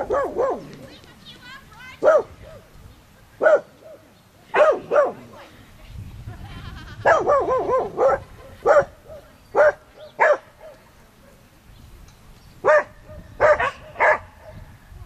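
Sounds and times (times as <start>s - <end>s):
dog barking: 0.0s - 0.8s, 2.0s - 2.7s, 3.4s - 5.4s, 7.0s - 11.4s, 12.6s - 14.6s.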